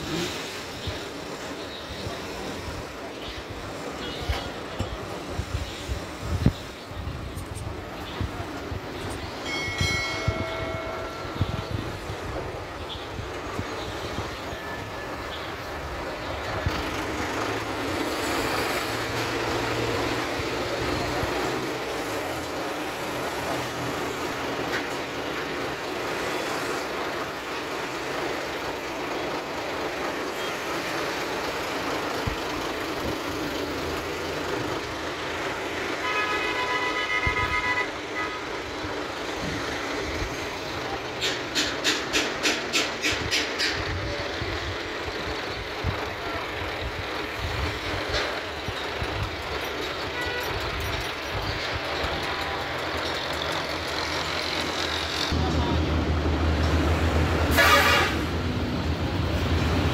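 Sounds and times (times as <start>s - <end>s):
traffic and street noise: 0.0s - 59.9s
vehicle horn toot: 36.0s - 38.4s, 50.1s - 50.7s, 57.5s - 58.3s.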